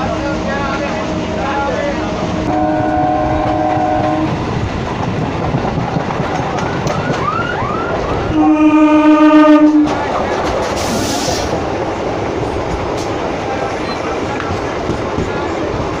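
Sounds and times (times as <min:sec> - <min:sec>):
train wheels rumbling on track: 0:00.0 - 0:16.0
train horn: 0:02.5 - 0:04.3, 0:08.3 - 0:10.0.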